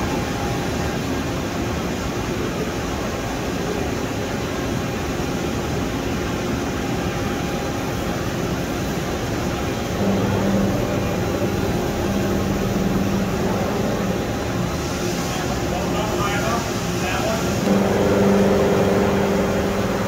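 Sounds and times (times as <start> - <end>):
machine hum: 6.7 - 20.0
low steady tone: 9.5 - 15.0, 17.6 - 20.0.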